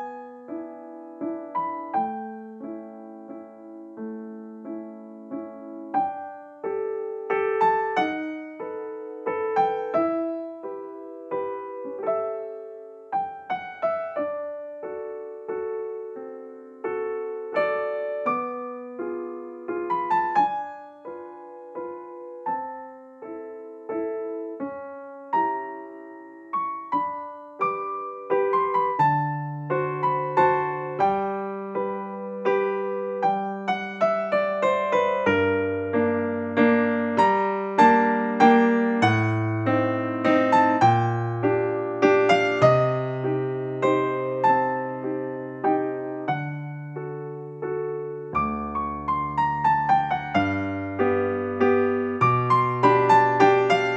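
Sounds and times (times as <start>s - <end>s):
piano piece: 0.0s - 53.9s.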